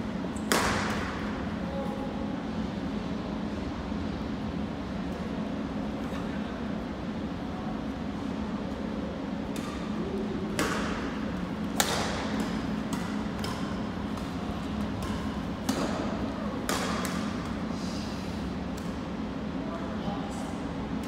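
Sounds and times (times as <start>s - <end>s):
steady low hum: 0.0s - 21.0s
rackets hitting shuttlecock: 0.4s - 1.3s, 9.5s - 17.6s.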